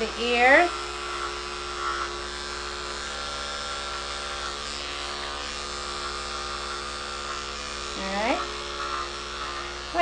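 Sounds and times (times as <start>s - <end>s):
electric clippers humming: 0.0s - 10.0s.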